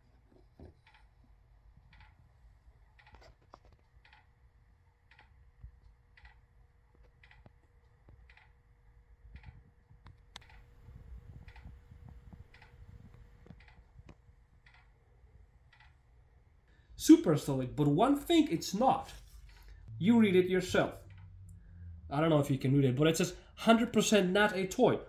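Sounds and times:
faint ticking: 3.9s - 9.6s, 10.3s - 17.6s
faint low rumbles: 4.4s - 25.0s.

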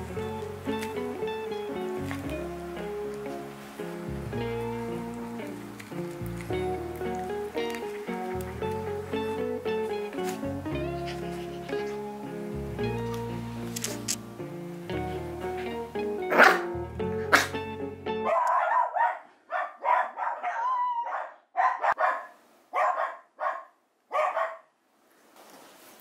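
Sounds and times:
background music: 0.0s - 18.8s
puppy whining: 6.9s - 12.5s
puppy barking: 16.2s - 24.7s.

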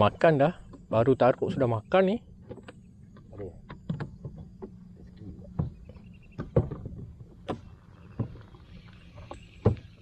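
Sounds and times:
low steady hum: 0.0s - 10.0s
knocks and clicks of handling: 2.4s - 4.8s.

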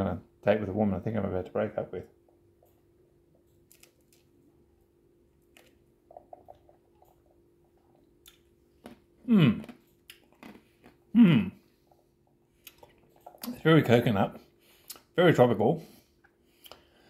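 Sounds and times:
faint steady hum: 0.0s - 17.0s
man humming mmm: 9.2s - 9.7s, 11.1s - 11.7s.

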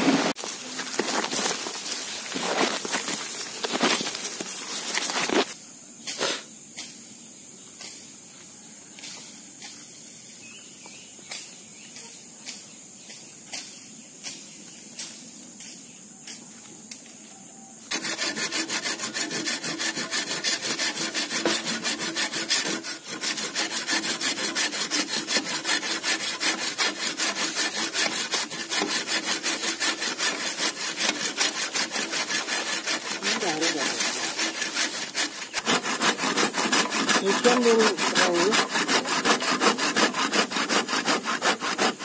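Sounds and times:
footsteps on leaf litter: 0.0s - 5.6s
hand saw cutting bamboo: 0.0s - 6.4s, 17.9s - 42.0s.

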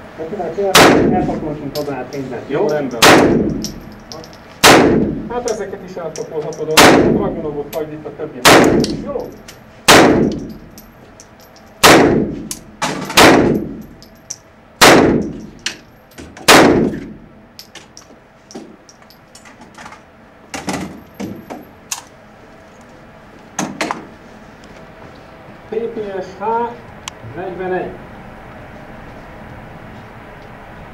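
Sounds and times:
gunshots echoing indoors: 0.7s - 1.2s, 3.0s - 3.9s, 4.6s - 5.3s, 6.7s - 7.3s, 8.4s - 9.0s, 9.9s - 10.6s, 11.8s - 13.8s, 14.8s - 15.4s, 16.4s - 17.2s.

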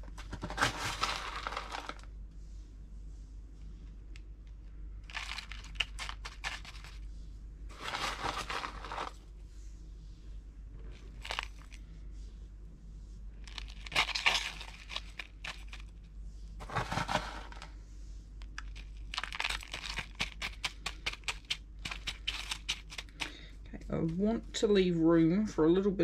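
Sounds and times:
potting mix rattling and crunching: 0.0s - 2.1s, 5.0s - 7.1s, 7.7s - 9.3s, 10.8s - 11.9s, 13.4s - 17.8s, 18.4s - 24.3s.

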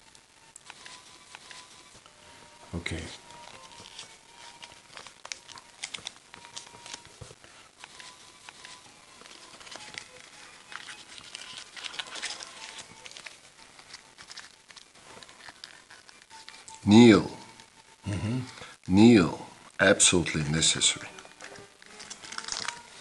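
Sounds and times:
paper crinkling as folded: 0.6s - 2.1s, 2.9s - 16.8s, 20.3s - 23.0s.

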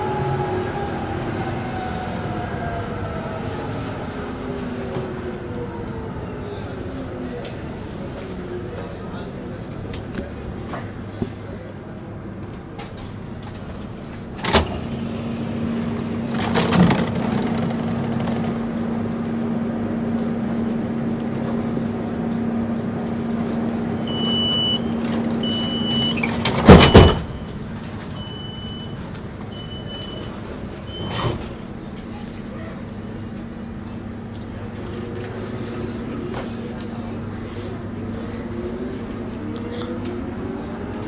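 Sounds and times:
short high warning beeps: 24.1s - 26.2s
doors shutting with double thud: 26.0s - 27.4s.

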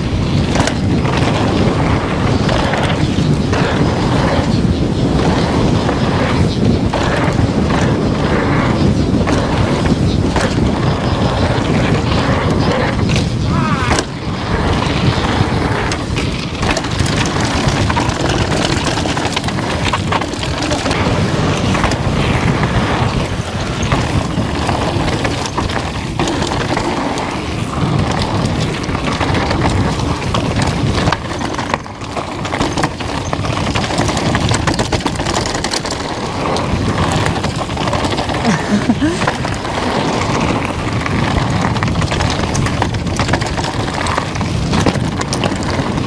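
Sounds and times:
bike tyre noise on trail: 0.0s - 46.0s
wind buffeting microphone: 0.0s - 46.0s
chain and suspension rattling: 15.9s - 22.0s, 23.0s - 46.0s
high-pitched squeaks: 23.2s - 26.4s, 30.3s - 32.0s, 32.6s - 34.7s, 38.0s - 38.8s.

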